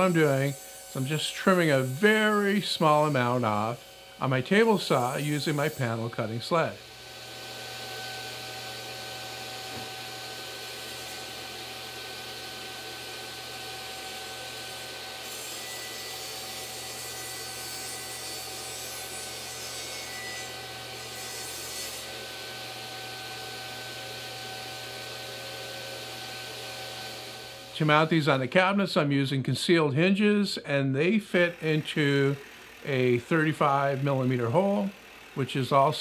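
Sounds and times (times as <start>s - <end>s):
saw blade cutting wood hiss: 0.0s - 6.9s
table saw running: 0.0s - 28.8s, 31.3s - 36.0s.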